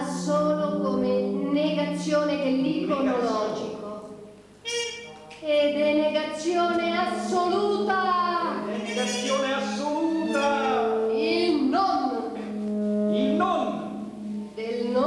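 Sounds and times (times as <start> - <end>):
woman singing: 0.0 - 4.0, 5.5 - 8.7, 11.0 - 12.4
saxophone low notes: 0.0 - 15.0.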